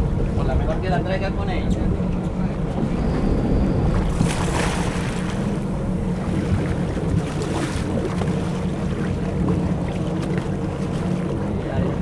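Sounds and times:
boat engines running: 0.0 - 12.0
sea washing alongside: 0.0 - 12.0
wind buffeting microphone: 0.0 - 12.0.

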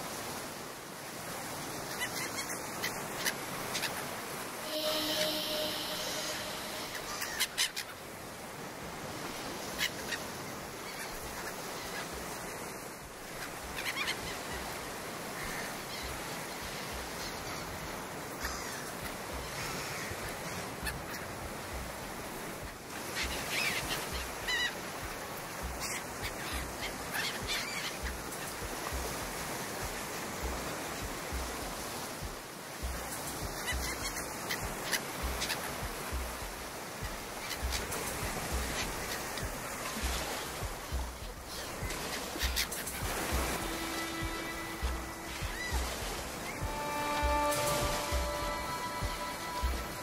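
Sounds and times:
honking bird calls: 2.0 - 8.0, 41.5 - 50.0
steady hiss: 4.5 - 7.4.

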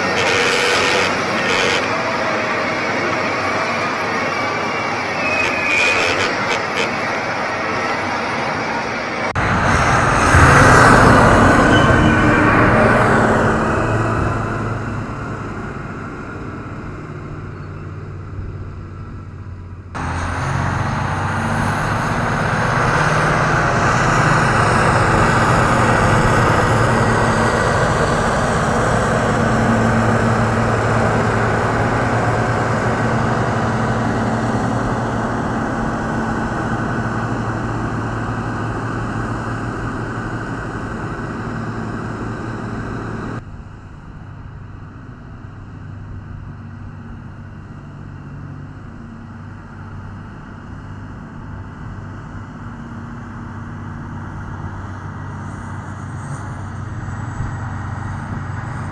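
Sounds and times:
high whine rising in pitch: 0.0 - 15.4
diesel engine running hard: 0.0 - 58.9.

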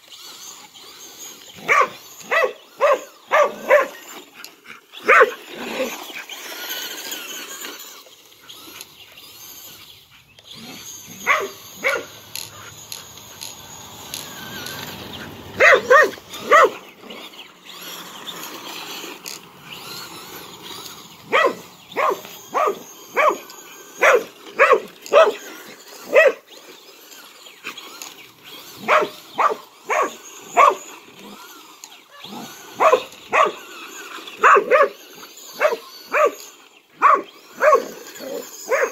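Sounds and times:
dog barking: 1.6 - 4.1, 5.0 - 5.4, 11.2 - 12.7, 15.6 - 16.8, 21.3 - 26.4, 28.8 - 30.9, 32.8 - 33.7, 34.4 - 38.9.

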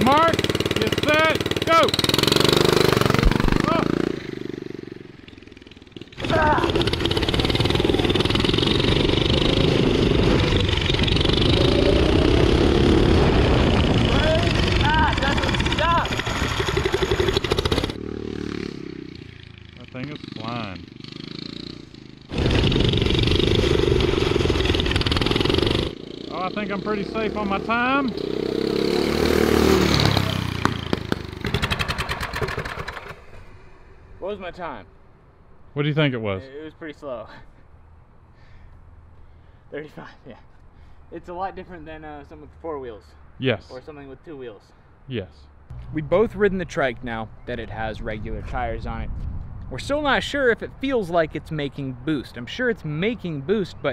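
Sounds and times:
engine running under load: 0.0 - 27.0
engine cracks: 5.2 - 18.0, 29.9 - 33.5.

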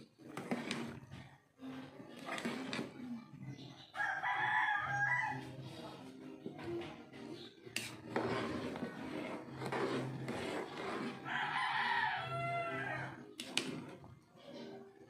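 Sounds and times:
metal ladle scraping a pot: 0.0 - 1.3, 2.1 - 3.0, 7.7 - 12.0
rooster crowing: 4.0 - 5.4, 11.2 - 13.2
soup boiling: 7.8 - 11.6.

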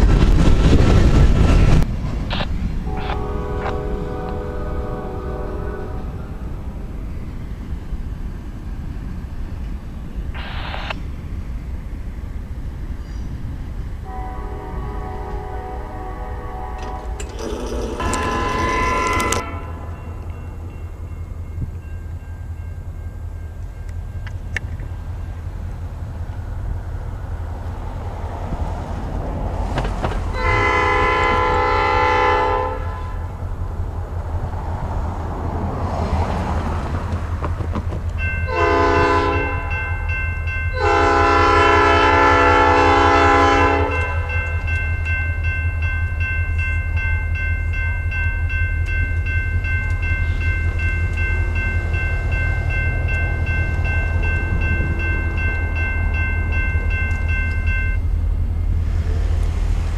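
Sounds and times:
train rumble: 0.0 - 59.9
locomotive air horn blasts: 2.9 - 6.5, 14.0 - 20.1, 30.3 - 33.3, 38.5 - 39.9, 40.7 - 44.4
steady high ringing: 16.8 - 24.3, 44.0 - 58.9.

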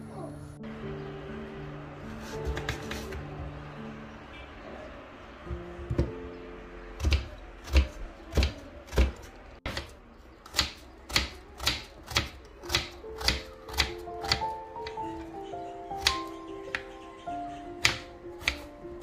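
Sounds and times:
soft background music: 0.0 - 19.0
knife slicing onion: 7.0 - 15.2, 15.9 - 16.9, 17.7 - 18.8.

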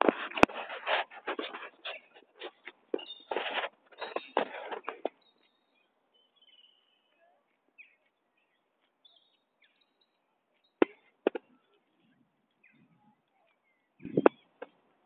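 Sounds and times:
loud rustling and scraping: 0.0 - 5.1
birdsong chirps and whistles: 1.8 - 14.7.

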